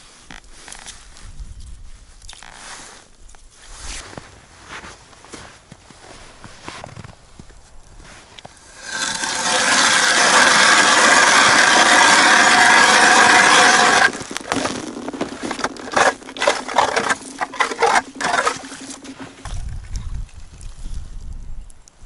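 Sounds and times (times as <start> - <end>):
irregular scrapes and knocks: 8.0 - 19.6
ice auger grinding through ice: 8.6 - 19.5.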